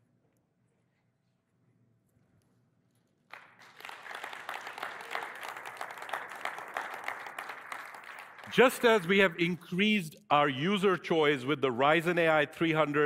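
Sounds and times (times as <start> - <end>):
audience applauding: 3.3 - 9.5.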